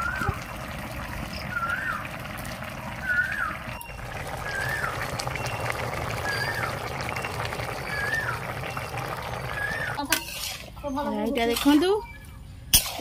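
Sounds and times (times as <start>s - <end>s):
bird whistled call: 1.3s - 2.2s, 2.8s - 10.0s.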